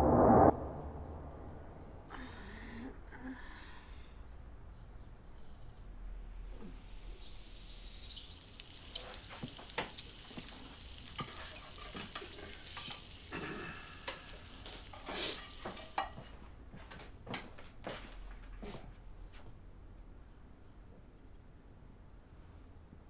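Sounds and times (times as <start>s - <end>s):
food sizzling in frying pan: 7.2s - 16.4s
spatula scraping pan: 8.9s - 13.3s, 14.0s - 16.4s.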